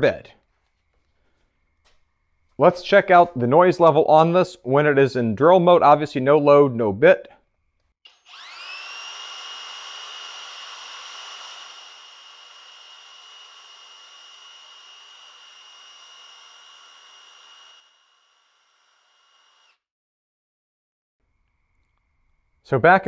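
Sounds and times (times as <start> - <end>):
rotary hammer high whine: 8.1 - 19.8.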